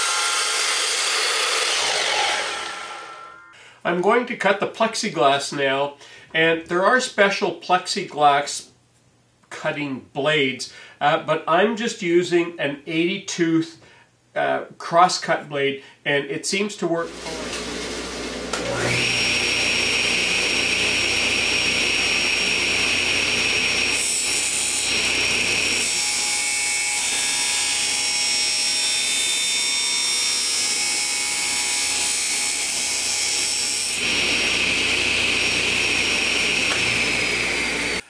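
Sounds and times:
saw cutting through acrylic sheet: 0.0 - 3.5, 18.5 - 38.0
table saw running: 0.0 - 3.6, 17.1 - 38.0.

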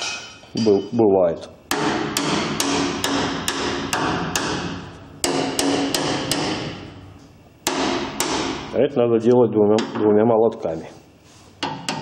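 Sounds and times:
hammer striking sheet metal: 1.7 - 6.9, 7.6 - 8.8, 11.6 - 12.0.

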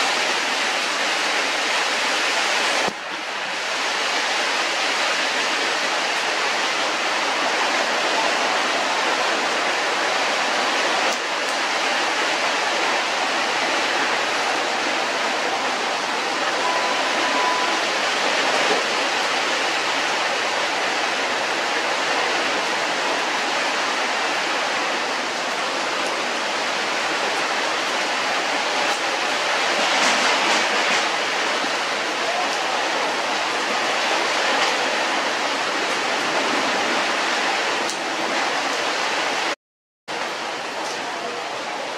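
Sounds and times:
brief faint tone: 16.6 - 17.9.

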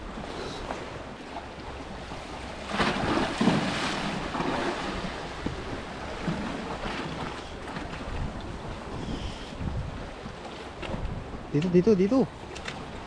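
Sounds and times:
sea water lapping: 0.0 - 13.0
wind on microphone: 3.0 - 13.0.

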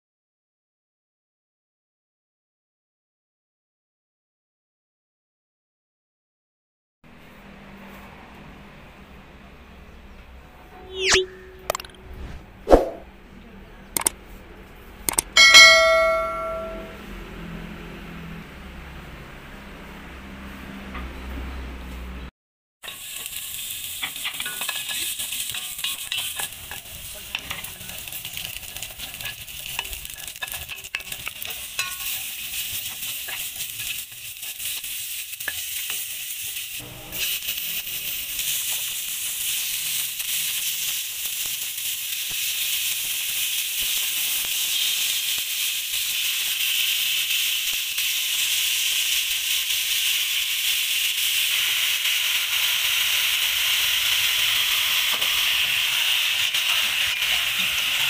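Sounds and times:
chicken frying hiss: 22.8 - 58.0
ginger sizzling in hot oil: 22.8 - 58.0.

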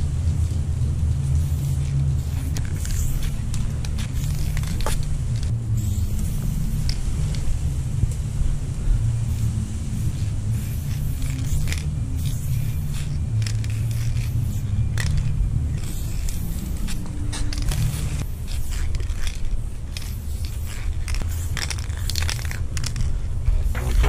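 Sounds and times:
wind buffeting microphone: 0.0 - 18.2
spray paint can hissing: 1.2 - 7.5, 9.3 - 23.1.

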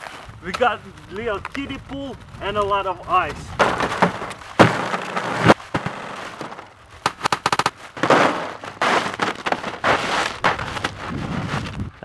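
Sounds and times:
ice cubes clattering into plastic pool: 3.6 - 6.7.

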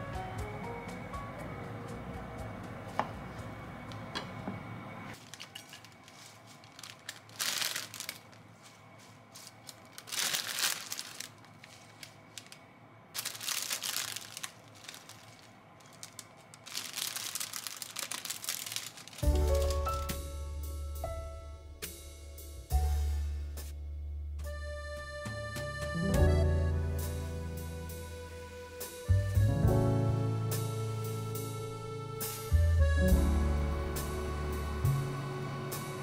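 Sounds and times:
salad leaves rustling: 5.2 - 20.6.

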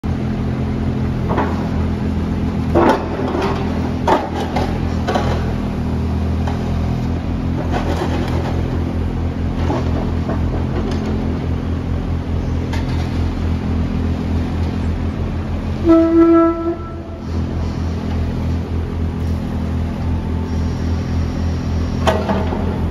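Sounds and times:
excavator diesel engine running: 0.0 - 22.9
horn beep: 15.8 - 17.4.

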